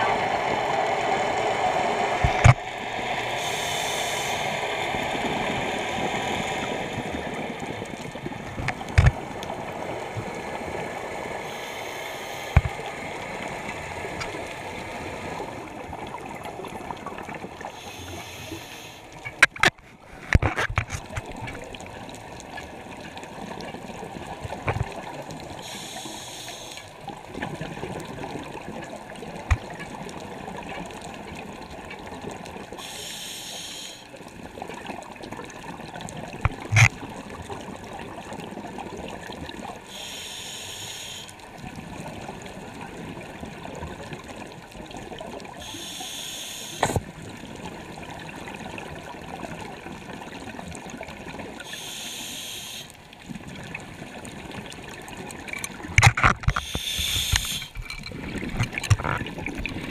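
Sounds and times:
low rumbling water wash: 0.0 - 17.6
exhaled bubbles hissing: 0.0 - 19.2, 23.2 - 29.7, 32.5 - 59.9.

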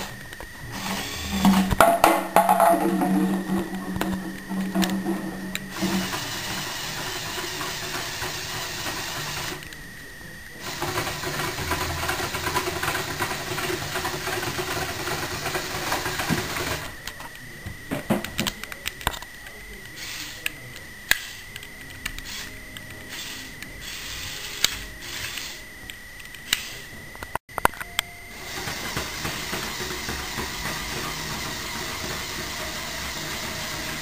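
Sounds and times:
robot arm motors whirring: 0.0 - 1.8, 3.5 - 9.8, 10.5 - 17.2, 18.4 - 27.4, 28.3 - 34.0
gears clicking and ticking: 3.5 - 9.8, 10.6 - 16.9, 19.9 - 25.6, 26.2 - 34.0.

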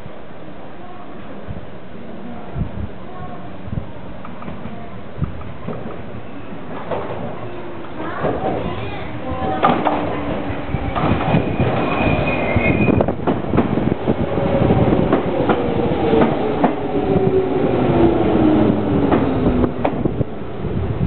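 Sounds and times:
high wheel squeal: 11.3 - 13.1.

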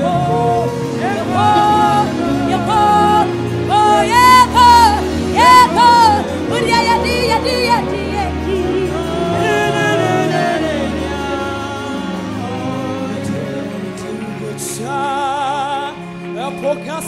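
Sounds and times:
woman singing gospel: 0.0 - 13.5
band accompaniment: 0.0 - 17.0.

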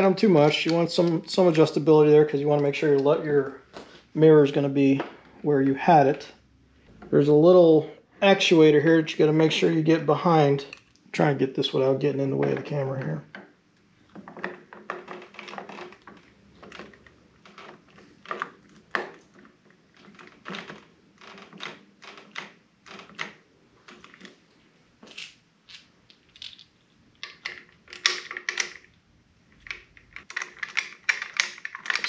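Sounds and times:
plastic and metal parts clicking: 27.2 - 32.0.

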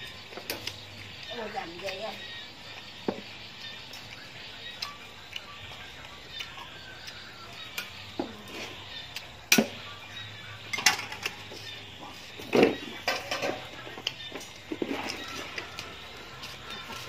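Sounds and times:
person chewing: 3.5 - 9.4.

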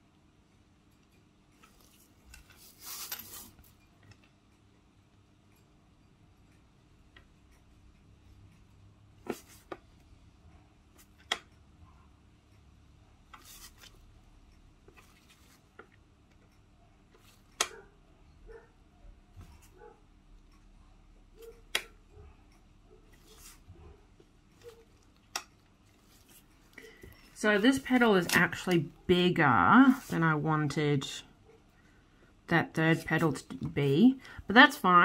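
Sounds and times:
brush scraping: 1.6 - 3.8, 23.2 - 23.8, 29.8 - 30.3.

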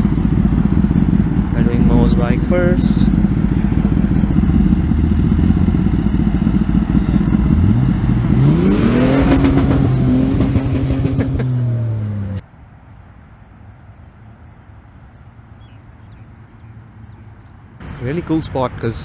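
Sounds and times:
motorcycle engine revving: 0.0 - 12.4.

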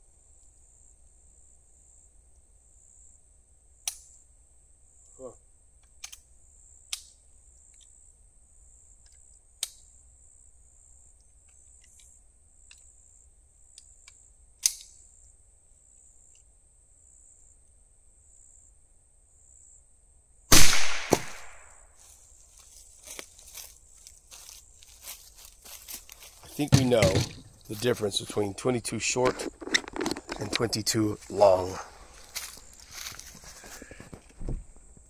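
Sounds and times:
rifle shot: 20.5 - 21.8
sharp crack: 20.5 - 21.8.

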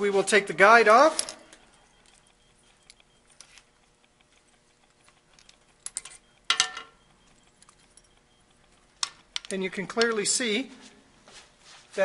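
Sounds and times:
small metal clicks and rattles: 1.1 - 10.2.

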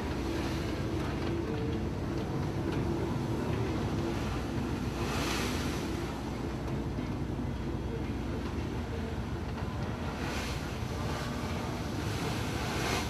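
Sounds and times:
ship engine drone: 0.0 - 13.0
water rushing: 3.8 - 6.6, 10.0 - 13.0.

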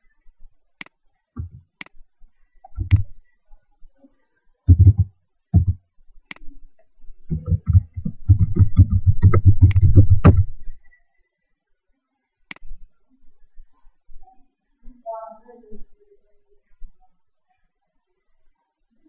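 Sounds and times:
laptop keyboard typing: 2.7 - 3.0, 4.7 - 5.8, 7.3 - 10.5.

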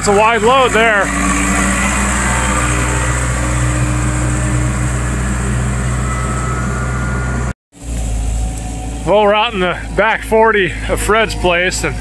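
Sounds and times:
backhoe loader engine running: 0.0 - 12.0.

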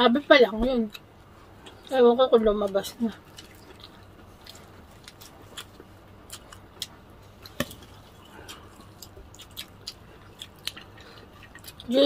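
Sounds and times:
crunchy chewing of fried chicken: 3.1 - 12.0.

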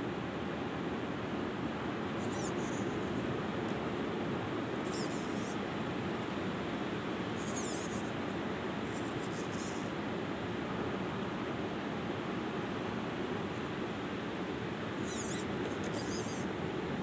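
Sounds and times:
high-pitched electric motor whine: 4.8 - 5.6, 7.4 - 8.2, 15.0 - 16.5.

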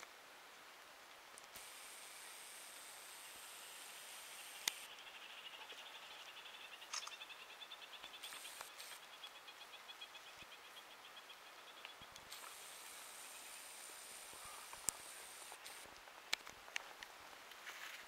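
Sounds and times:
sharp clicks: 3.8 - 4.9, 8.1 - 9.0, 12.2 - 16.6.

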